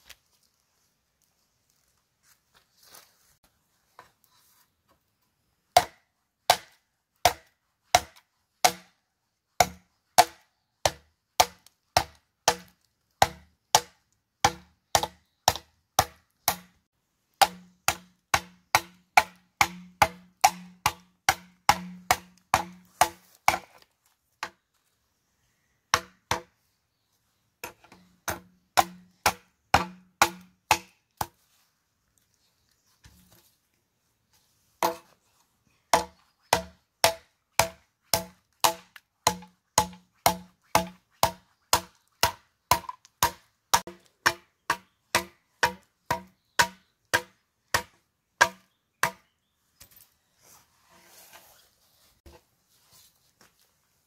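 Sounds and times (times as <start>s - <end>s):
blade chopping bamboo: 5.8s - 9.0s, 9.6s - 16.8s, 17.4s - 23.8s, 27.6s - 31.4s, 34.8s - 35.1s, 35.9s - 49.3s.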